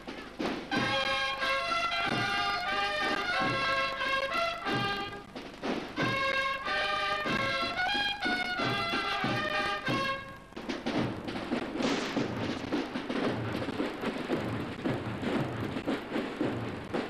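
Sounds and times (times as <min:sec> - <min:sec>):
drums rattling: 0:00.0 - 0:17.0
cornets playing melody: 0:00.7 - 0:05.3, 0:06.0 - 0:10.4.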